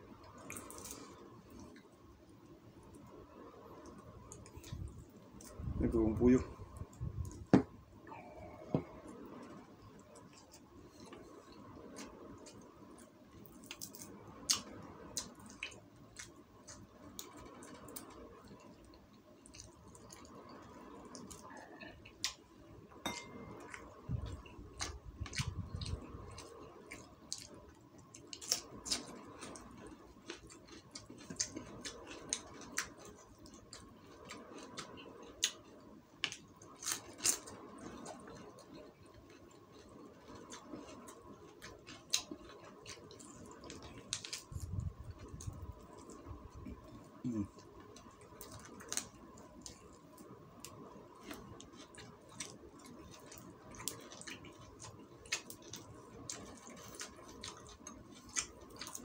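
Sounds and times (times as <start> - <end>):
person chewing with mouth smacks: 28.1 - 59.0.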